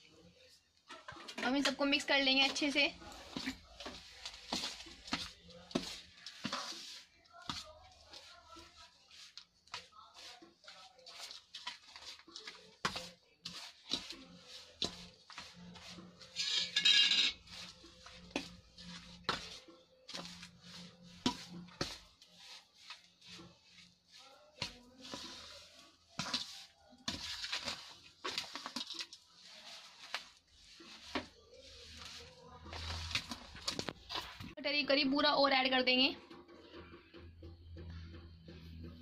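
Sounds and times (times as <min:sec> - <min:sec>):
spoon scraping and knocking bowl: 0:12.8 - 0:20.4.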